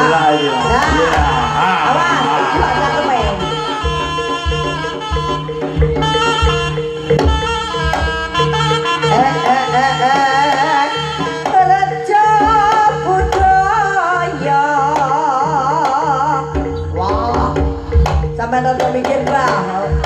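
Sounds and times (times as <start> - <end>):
hand drums beating: 0.0 - 20.0
wavering high melody: 0.0 - 20.0.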